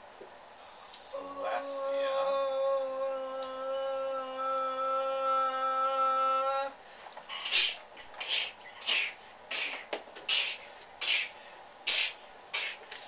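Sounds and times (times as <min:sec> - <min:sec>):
marker squeaking on whiteboard: 0:07.3 - 0:11.3.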